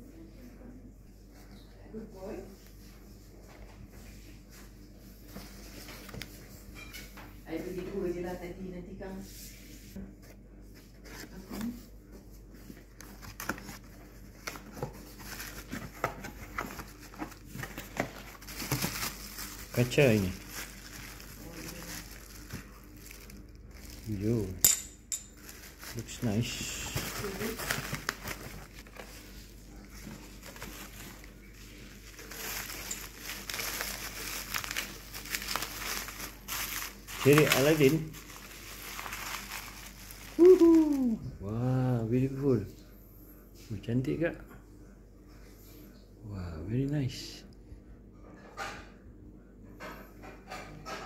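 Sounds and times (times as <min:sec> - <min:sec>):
bubble wrap rustling: 0:11.0 - 0:24.6, 0:25.2 - 0:41.3.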